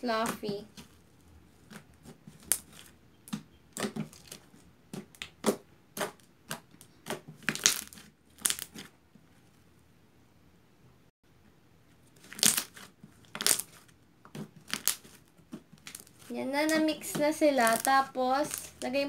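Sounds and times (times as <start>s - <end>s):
squishy slime crackles and pops: 1.6s - 4.4s, 5.0s - 8.9s, 12.2s - 15.2s, 15.8s - 16.8s, 17.6s - 18.9s.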